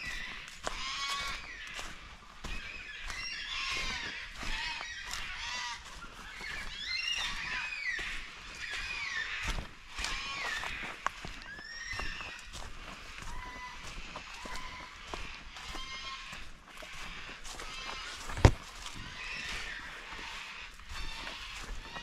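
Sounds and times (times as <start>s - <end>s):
birds squawking: 0.0s - 22.0s.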